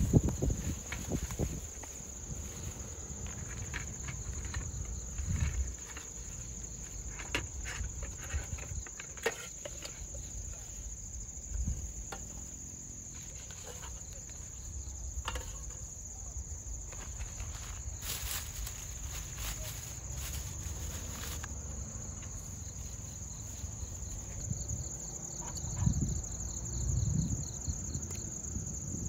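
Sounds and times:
high-pitched insect chorus: 0:00.0 - 0:29.0
rustling bag: 0:17.0 - 0:21.5.

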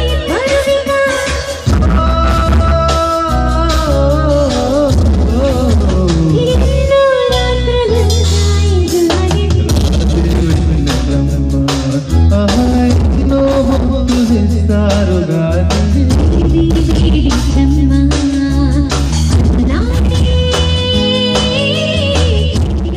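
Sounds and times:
steady drum beat: 0:00.0 - 0:07.2, 0:07.9 - 0:22.9
woman singing: 0:00.0 - 0:10.2, 0:16.0 - 0:22.9
bass notes: 0:00.0 - 0:22.9
keyboard: 0:00.0 - 0:22.9
man singing: 0:01.7 - 0:06.7, 0:09.7 - 0:17.4.

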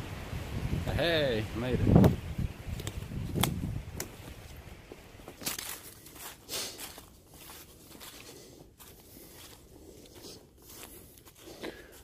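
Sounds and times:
footsteps through leaf litter: 0:04.2 - 0:12.0.

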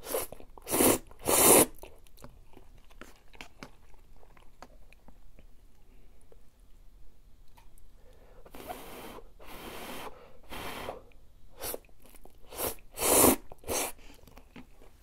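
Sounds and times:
person slurping noodles: 0:00.0 - 0:01.8, 0:12.5 - 0:14.0.

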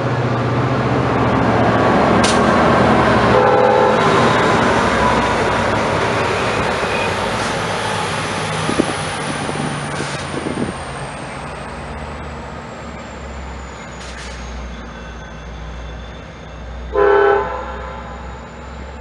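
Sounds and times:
diesel train rumbling: 0:00.0 - 0:19.0
sharp clack: 0:02.2 - 0:02.6.

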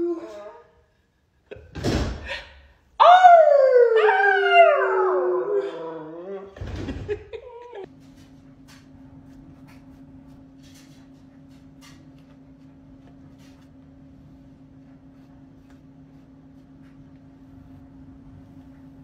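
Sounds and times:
dog howling: 0:03.0 - 0:06.6.

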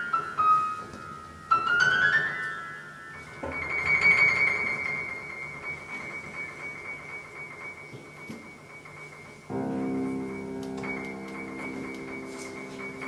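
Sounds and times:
keyboard music: 0:09.5 - 0:13.0.

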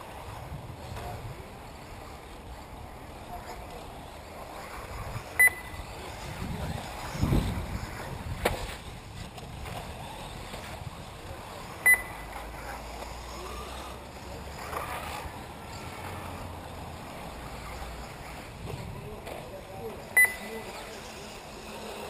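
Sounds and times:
rc car motors and tyres: 0:00.0 - 0:22.0
loud electronic beep: 0:05.4 - 0:05.8, 0:20.2 - 0:20.5.

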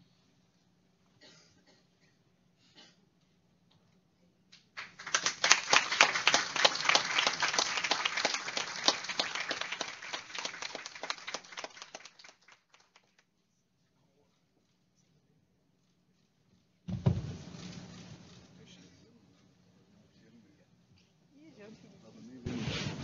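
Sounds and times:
audience applauding: 0:04.8 - 0:13.2.

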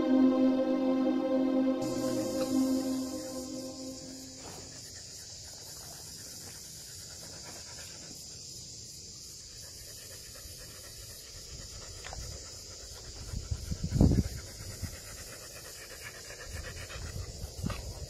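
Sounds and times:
insects droning: 0:01.4 - 0:18.0
dog panting: 0:04.4 - 0:08.5, 0:09.5 - 0:18.0.

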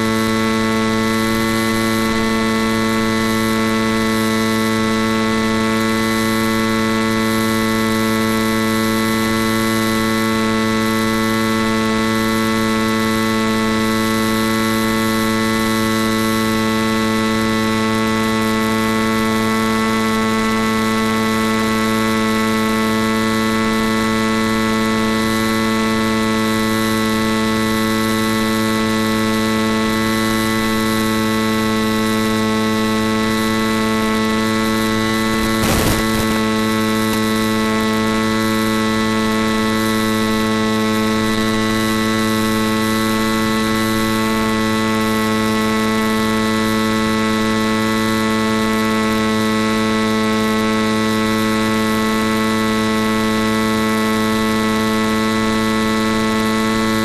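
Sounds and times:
electrical hum: 0:20.1 - 0:48.8
static crackle: 0:35.0 - 0:38.3.

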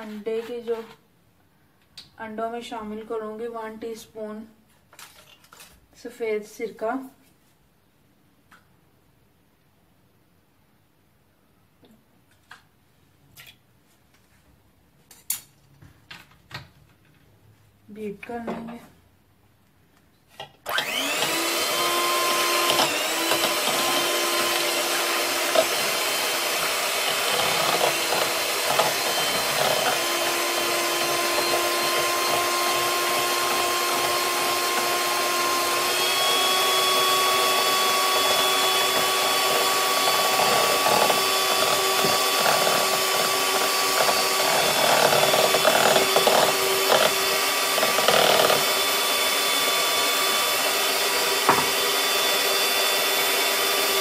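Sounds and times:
electric hand mixer running: 0:20.7 - 0:54.0.

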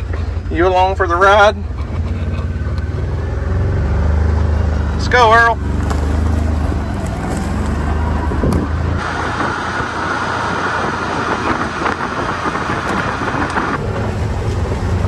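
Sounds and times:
vehicle engine hum: 0:00.0 - 0:15.0
tyre and wind noise: 0:03.8 - 0:15.0.

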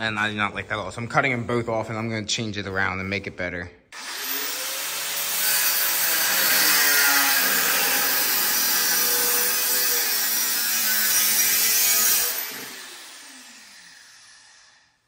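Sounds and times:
angle grinder cutting steel: 0:04.0 - 0:14.9.

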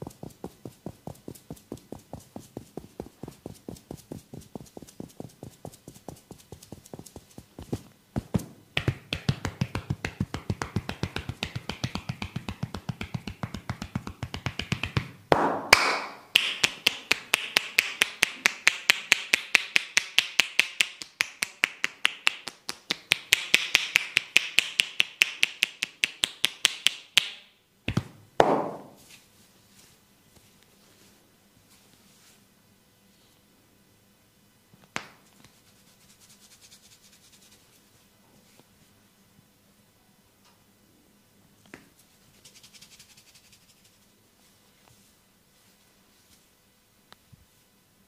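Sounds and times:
hands striking body in massage: 0:00.0 - 0:18.1, 0:27.9 - 0:29.0.

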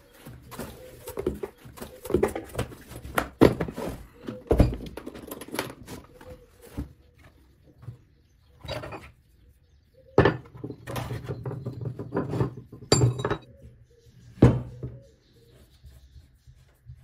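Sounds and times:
tools clattering on wooden table: 0:03.5 - 0:06.0, 0:10.2 - 0:13.5.

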